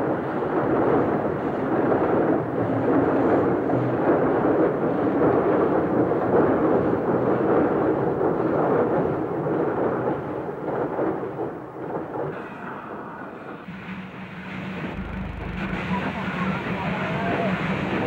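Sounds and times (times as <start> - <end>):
steam locomotive rumbling roar: 12.3 - 18.0.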